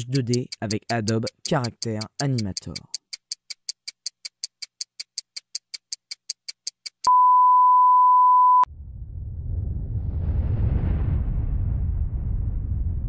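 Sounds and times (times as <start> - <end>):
rapid clock ticking: 0.0 - 7.1
low rumble: 8.7 - 13.0.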